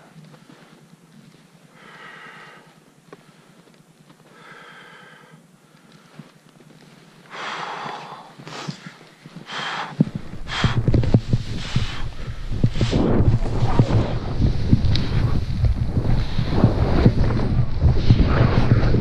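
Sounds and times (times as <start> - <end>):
person breathing hard: 1.7 - 3.6, 4.2 - 6.4, 7.2 - 14.0
skis hissing through powder snow: 5.9 - 19.0
wind buffeting microphone: 9.4 - 19.0.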